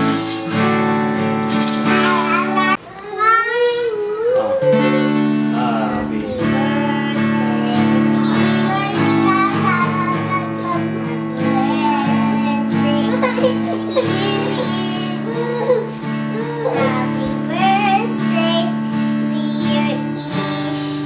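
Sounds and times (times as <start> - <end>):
sustained guitar chords: 4.8 - 13.3.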